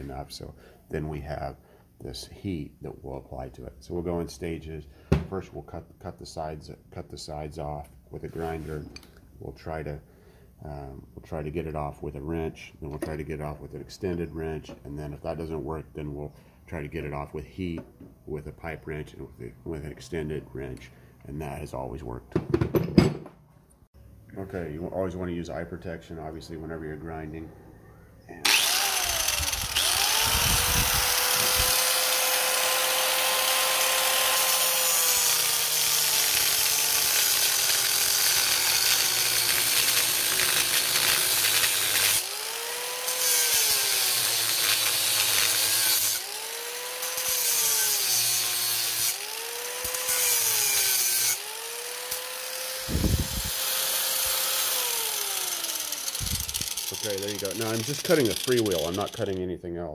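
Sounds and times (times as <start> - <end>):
angle grinder cutting steel: 28.4 - 59.4.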